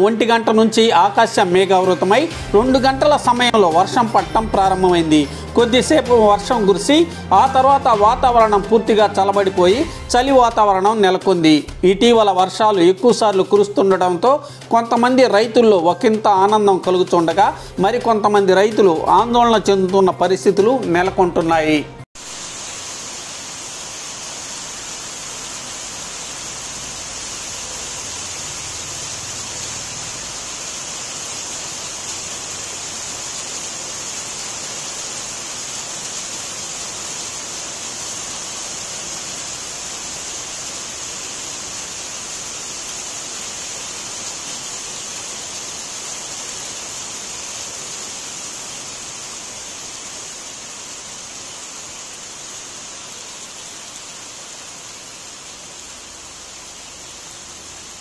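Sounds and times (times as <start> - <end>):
steady rain falling: 0.0 - 19.1, 22.1 - 58.0.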